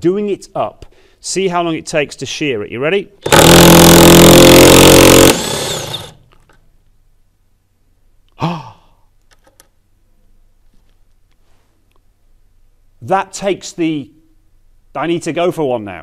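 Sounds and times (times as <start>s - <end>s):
impact wrench hammering: 3.2s - 6.1s.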